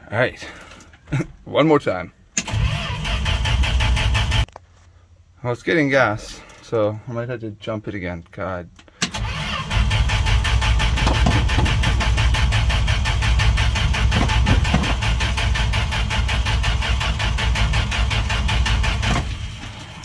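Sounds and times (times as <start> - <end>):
engine cranking on starter motor: 2.4 - 4.5, 9.0 - 20.0.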